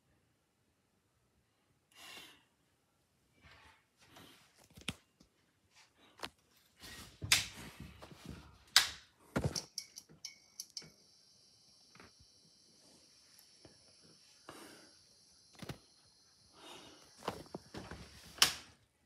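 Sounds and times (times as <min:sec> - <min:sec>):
fluorescent ballast whine: 0:09.7 - 0:18.9.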